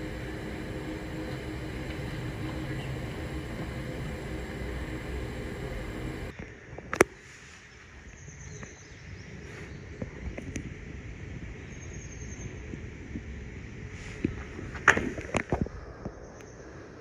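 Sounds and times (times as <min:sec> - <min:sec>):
low mechanical hum: 0:00.0 - 0:07.2.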